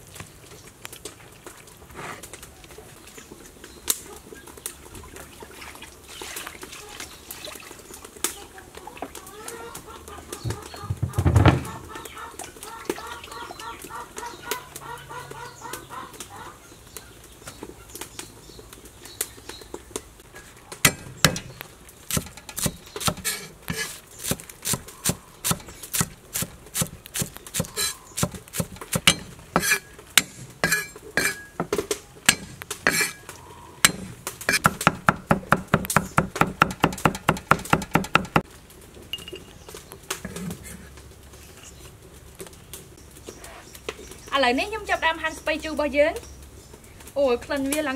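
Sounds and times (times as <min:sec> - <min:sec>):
cleaver chopping on wooden block: 0:20.8 - 0:33.2, 0:33.8 - 0:38.4.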